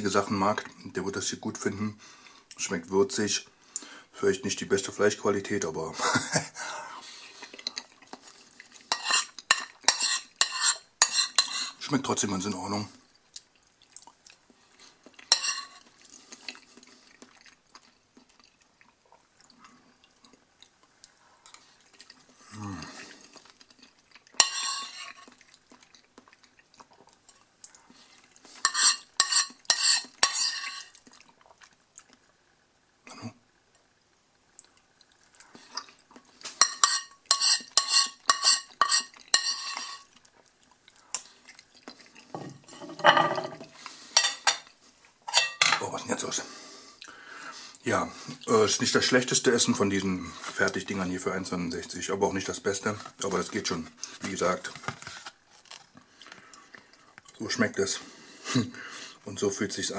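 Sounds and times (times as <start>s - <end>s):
spoon scraping a ceramic plate: 8.9s - 11.8s, 15.3s - 15.8s, 24.4s - 25.3s, 28.6s - 31.0s, 36.6s - 40.1s.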